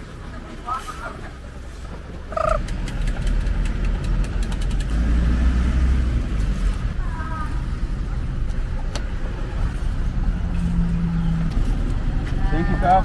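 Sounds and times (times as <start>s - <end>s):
vehicle engine rumble: 0.0s - 13.0s
brief pitched tone: 2.3s - 2.6s.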